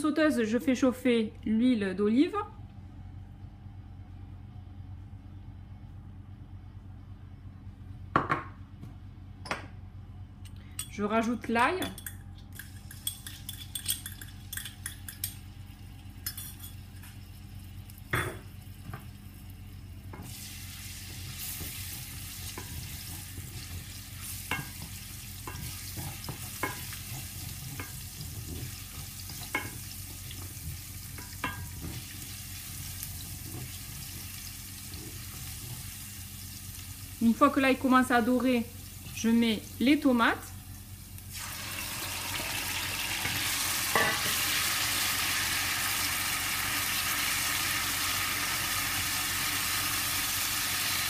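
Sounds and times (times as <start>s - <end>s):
garlic sizzling in oil: 17.0s - 51.0s
spatula scraping and tapping pan: 21.6s - 32.1s.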